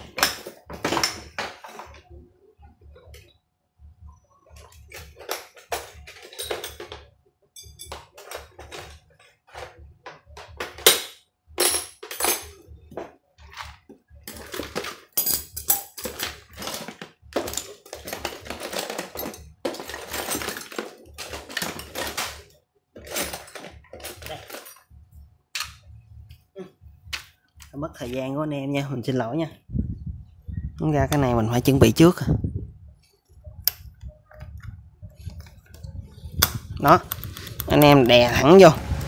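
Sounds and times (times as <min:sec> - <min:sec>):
metal tools clattering: 0:00.0 - 0:02.0, 0:04.6 - 0:25.0.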